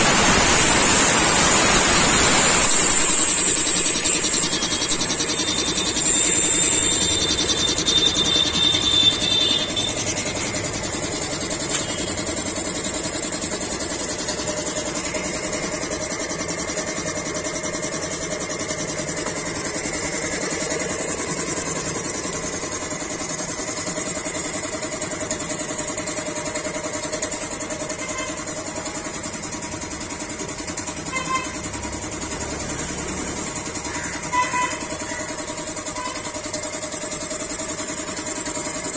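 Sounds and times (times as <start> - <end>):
compressor air hiss: 0.0 - 17.3
air compressor running: 0.0 - 38.9.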